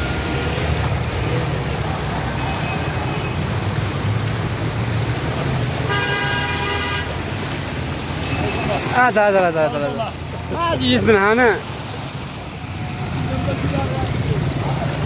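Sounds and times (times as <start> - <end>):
heavy rain: 0.0 - 15.0
water splashing: 0.0 - 15.0
car horn: 5.9 - 7.2.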